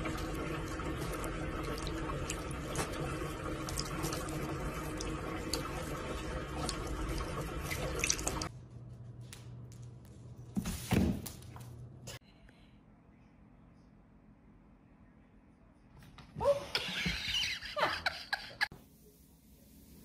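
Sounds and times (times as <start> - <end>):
water drips and splashes: 0.0 - 8.5.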